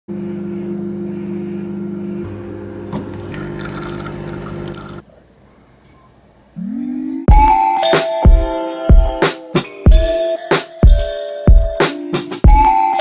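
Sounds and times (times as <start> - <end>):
espresso machine pump humming: 2.7 - 5.0.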